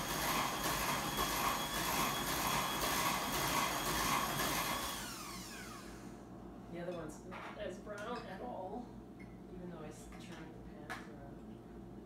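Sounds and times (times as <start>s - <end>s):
kitchen appliance motor running: 0.0s - 6.1s.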